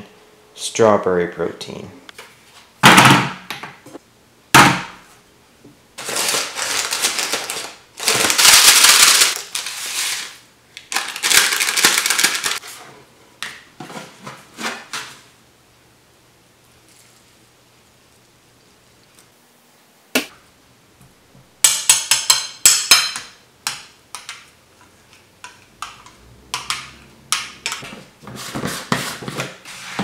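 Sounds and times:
paper packet rustling: 6.0 - 12.8.

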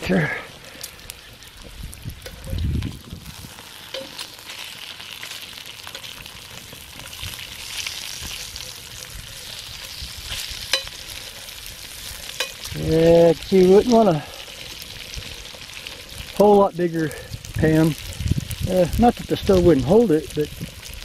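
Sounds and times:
bacon sizzling in a skillet: 0.0 - 21.0
metal tongs clicking on pan: 10.7 - 11.0, 12.3 - 12.7.

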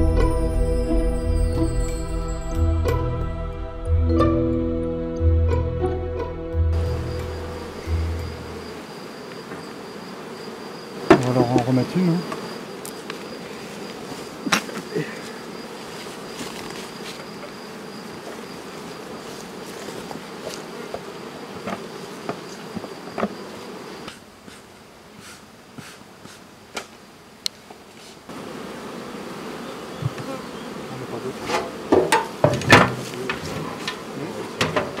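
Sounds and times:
thin high tone: 0.0 - 8.7
bees buzzing: 0.0 - 27.4, 28.2 - 35.0.

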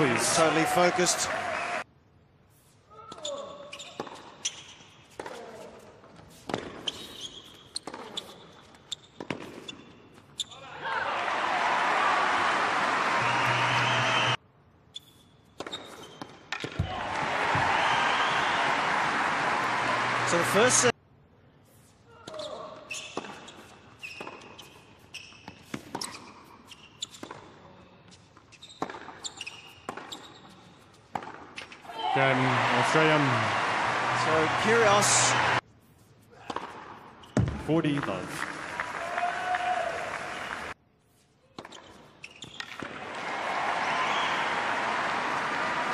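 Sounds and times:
sneakers squeaking on court: 3.1 - 5.4, 6.3 - 10.6, 14.9 - 16.8, 22.3 - 27.5, 28.1 - 31.8, 37.2 - 37.7, 41.6 - 42.8
tennis ball bouncing on court: 31.1 - 31.8.

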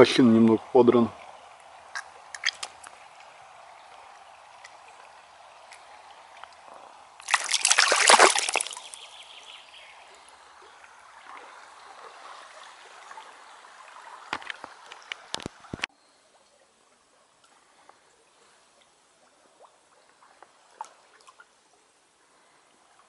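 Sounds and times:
water sloshing and trickling: 0.0 - 23.0
loud water splash: 7.2 - 9.0.

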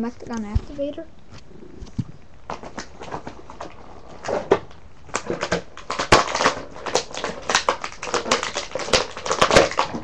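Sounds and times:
plastic packaging crackling: 2.4 - 10.0.

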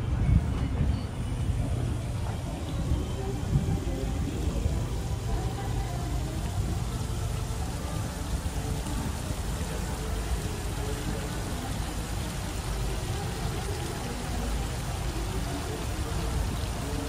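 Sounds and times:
faint indistinct voices: 0.0 - 17.0
low outdoor noise wash: 0.0 - 17.0.

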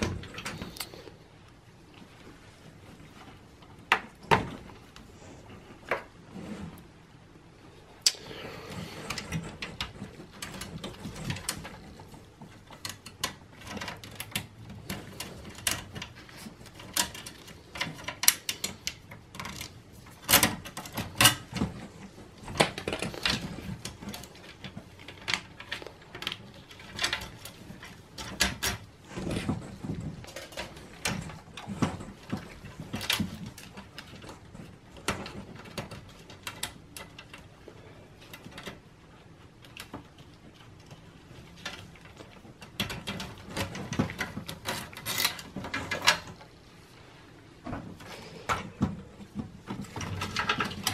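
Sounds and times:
plastic connectors clicking and rattling: 39.6 - 46.5.

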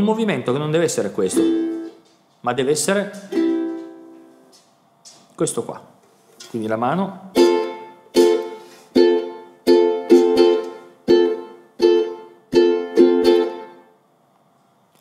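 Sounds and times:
ukulele staccato strumming: 1.2 - 2.1, 3.0 - 4.2, 7.3 - 13.9.

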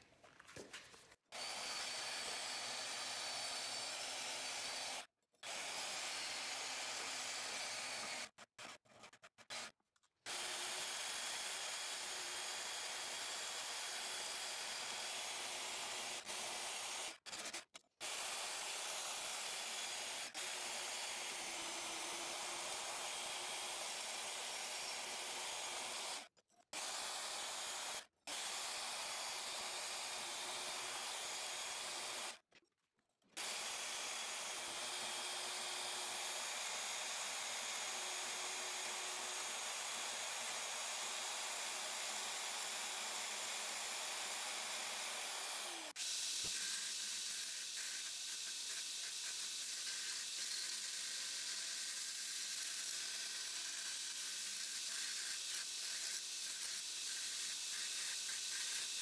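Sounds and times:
band saw cutting steel: 33.4 - 59.0
belt grinder grinding steel: 33.4 - 59.0.

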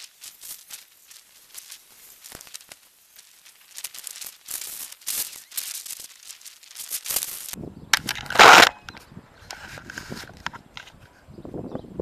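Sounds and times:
deep wind buffeting: 7.6 - 12.0
gusty wind on microphone: 7.6 - 12.0.

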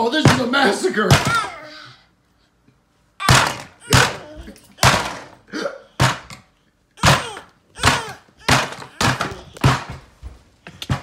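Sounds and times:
mallet thunking on plastic toys: 0.2 - 1.5, 3.2 - 5.4, 6.0 - 10.0.

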